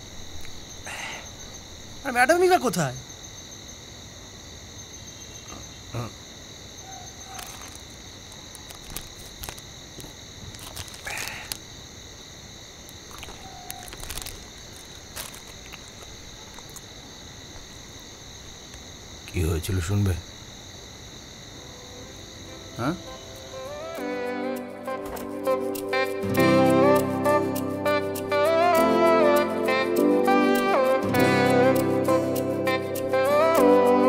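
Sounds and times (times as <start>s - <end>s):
crickets trilling: 0.0s - 34.0s
handling sounds: 7.2s - 11.6s, 12.9s - 16.9s.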